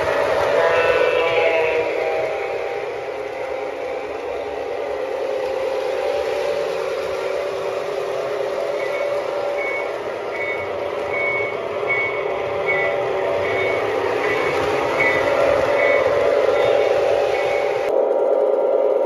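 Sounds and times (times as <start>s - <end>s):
diesel engine drone: 0.0s - 19.0s
bell dinging: 8.8s - 17.9s.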